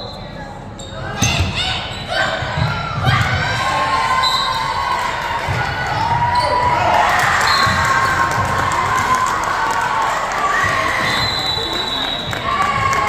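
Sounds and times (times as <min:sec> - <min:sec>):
girls shouting and cheering: 0:12.4 - 0:13.0.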